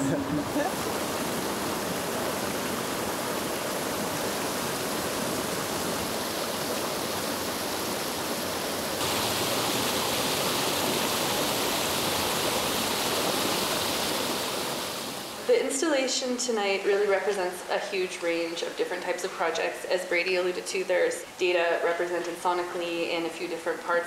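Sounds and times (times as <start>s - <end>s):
creek water flowing: 0.0s - 16.0s.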